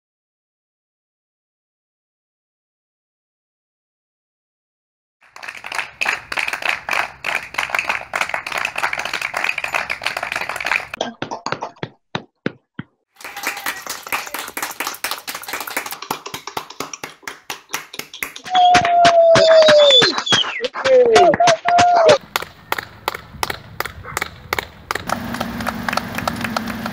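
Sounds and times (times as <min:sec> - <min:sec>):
people clapping: 0:05.2 - 0:12.3, 0:13.2 - 0:26.9.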